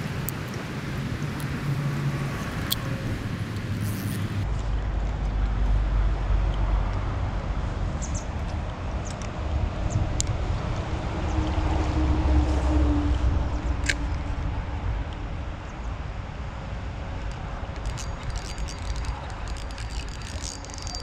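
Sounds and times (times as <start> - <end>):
wind buffeting microphone: 0.0 - 4.5
steady outdoor hiss: 0.0 - 21.0.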